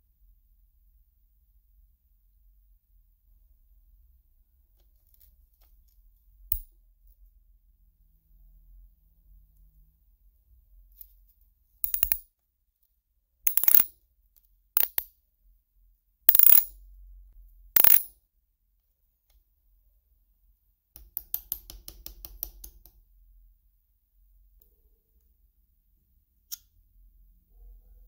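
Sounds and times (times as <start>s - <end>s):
nut clinking on wooden bench: 11.8s - 12.2s, 13.5s - 13.9s, 17.8s - 18.1s
metal scraping of nut turning: 13.5s - 13.9s, 16.3s - 16.6s, 17.8s - 18.0s.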